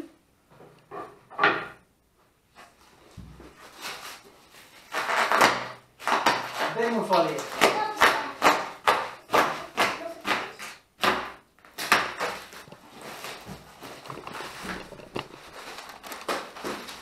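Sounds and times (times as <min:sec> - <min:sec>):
rustle of plastic and cardboard: 0:02.5 - 0:07.6, 0:12.0 - 0:17.0.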